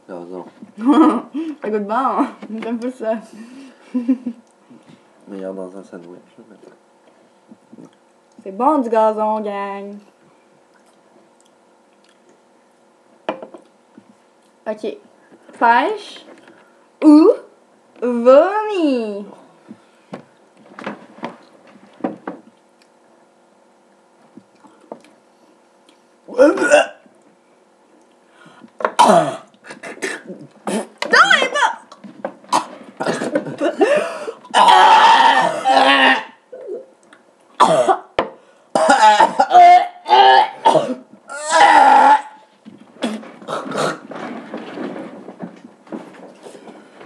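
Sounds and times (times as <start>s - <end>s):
people gagging and retching: 26.3s - 27.1s, 28.6s - 31.1s, 31.8s - 36.9s, 38.8s - 42.4s, 43.0s - 44.1s.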